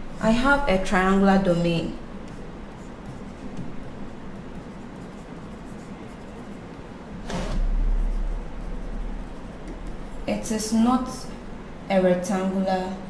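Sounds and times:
steady low hum: 0.0 - 13.0
stylus tapping and scratching screen: 7.2 - 10.9.

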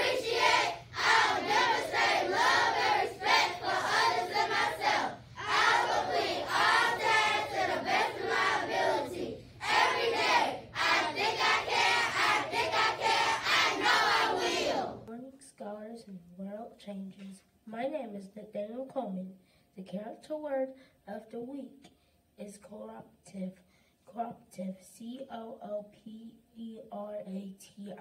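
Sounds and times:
children reciting in unison: 0.0 - 15.0.

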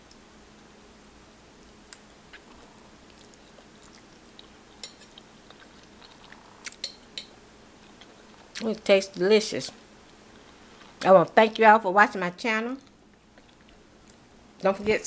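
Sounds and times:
person chewing: 1.7 - 8.7, 12.8 - 14.2.

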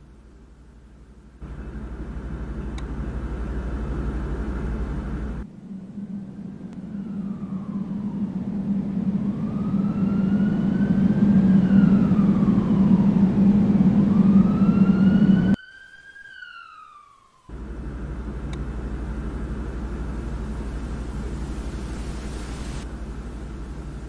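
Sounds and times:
steady low hum: 0.0 - 15.6, 17.5 - 24.0
loud low rumble: 1.3 - 15.6
faint click: 2.7 - 2.9, 18.5 - 18.7
emergency siren wailing: 6.0 - 19.6.

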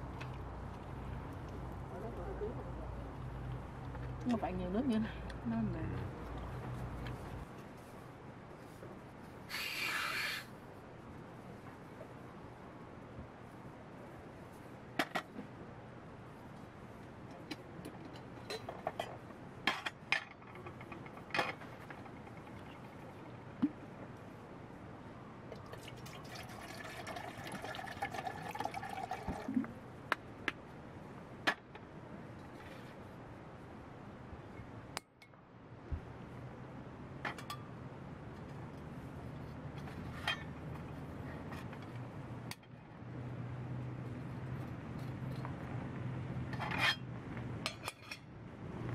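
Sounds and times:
metal camping cookware clinking: 46.6 - 48.3.

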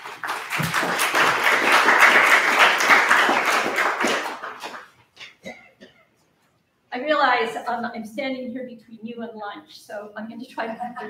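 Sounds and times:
audience applauding: 0.0 - 5.0.

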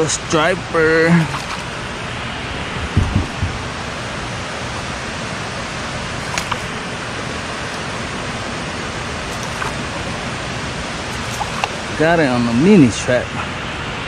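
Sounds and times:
low thumps: 2.7 - 3.8.

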